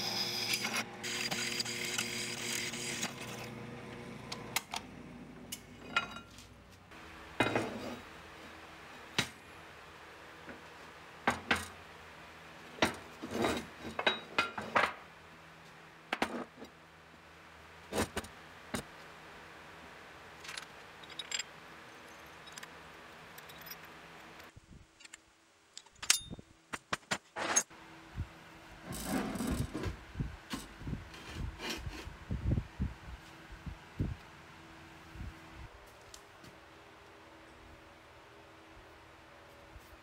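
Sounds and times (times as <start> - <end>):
steel parts clinking on workbench: 5.8 - 6.4.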